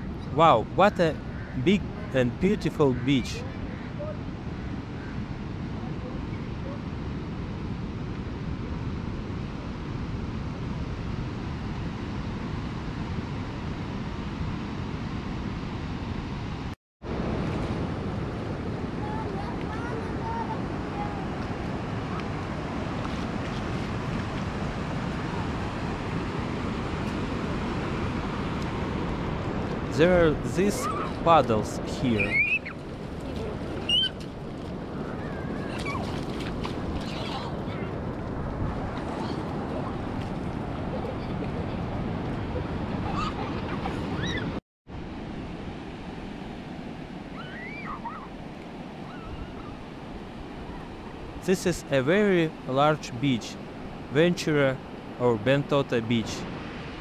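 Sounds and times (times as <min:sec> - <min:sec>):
ocean surf washing on beach: 0:00.0 - 0:57.0
wind on microphone: 0:17.4 - 0:44.6
faint high cries: 0:30.8 - 0:31.2, 0:47.3 - 0:48.4, 0:49.0 - 0:49.8.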